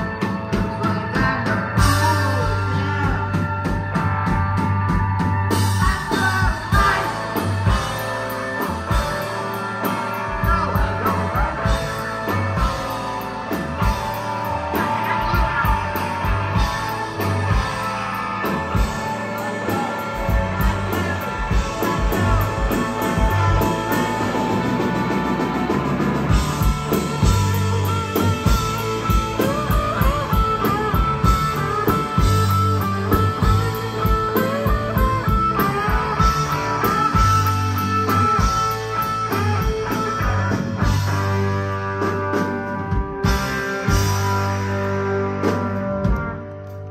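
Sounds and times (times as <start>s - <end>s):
bass guitar: 0.0s - 46.9s
drum kit: 0.0s - 46.9s
electric guitars: 0.0s - 46.9s
lead guitar bending notes: 0.0s - 46.9s.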